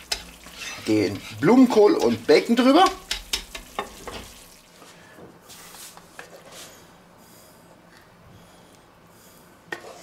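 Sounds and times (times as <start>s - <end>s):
wooden spoon scraping pan: 0.1s - 4.4s, 9.7s - 10.0s.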